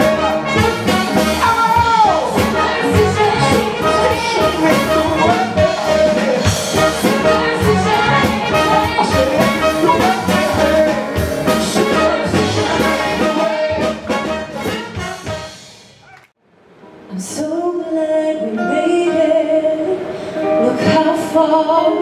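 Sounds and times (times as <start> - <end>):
band playing jazz: 0.0 - 15.8
trumpets and trombones: 0.0 - 15.9.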